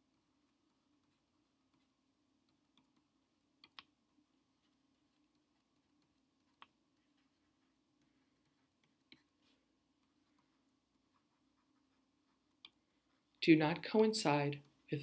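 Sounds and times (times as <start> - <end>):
faint room hum: 0.0 - 15.0
stylus tapping on tablet: 2.5 - 4.0, 4.6 - 12.8.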